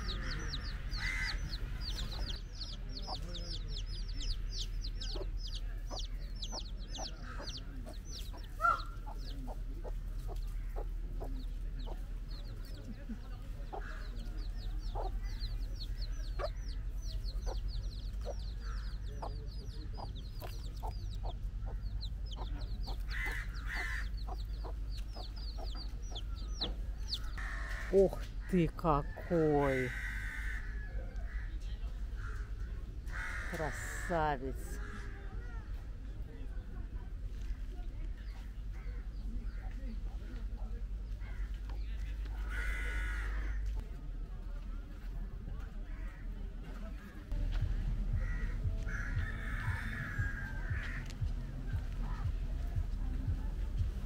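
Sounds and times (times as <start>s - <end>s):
chicks peeping: 0.0s - 28.4s
hen clucking: 0.0s - 31.3s.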